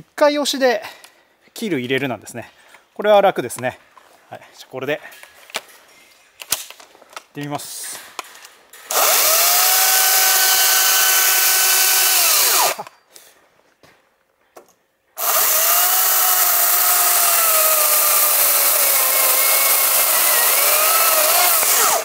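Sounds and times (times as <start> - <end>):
electric chainsaw running: 8.9 - 12.9, 15.2 - 22.0.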